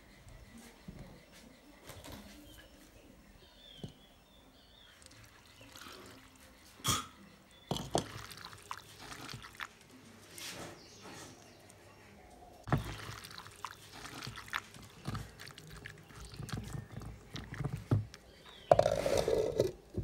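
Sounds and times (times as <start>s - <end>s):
liquid pouring and splashing: 5.0s - 6.4s, 7.7s - 10.0s, 12.7s - 18.2s.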